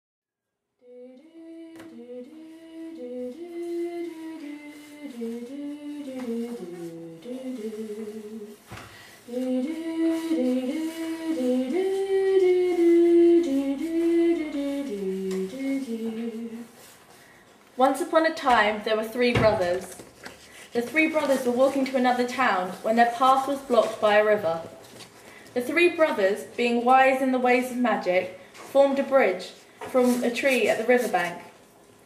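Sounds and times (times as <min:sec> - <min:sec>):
person singing wordless melody: 0:00.8 - 0:16.9.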